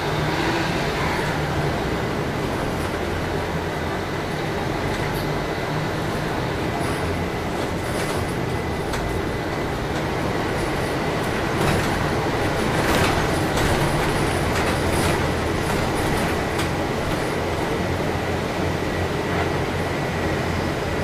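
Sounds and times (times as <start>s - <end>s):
bus engine and tyre noise: 0.0s - 21.0s
clicks and knocks from bus body: 6.0s - 18.0s.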